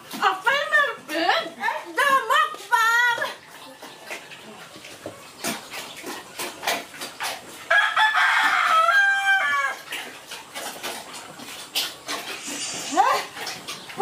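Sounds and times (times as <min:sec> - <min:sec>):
pig eating at trough: 0:00.0 - 0:14.0
rooster crowing: 0:07.7 - 0:09.8.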